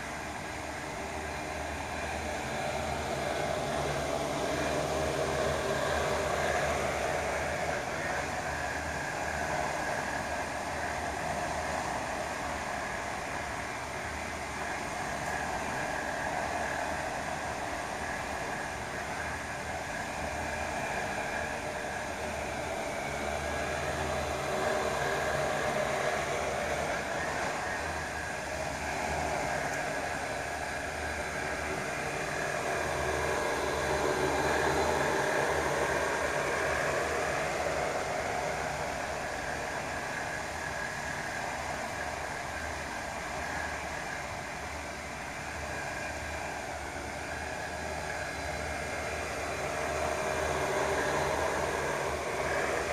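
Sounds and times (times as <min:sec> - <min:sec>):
drone propellers whirring: 0:00.0 - 0:52.9.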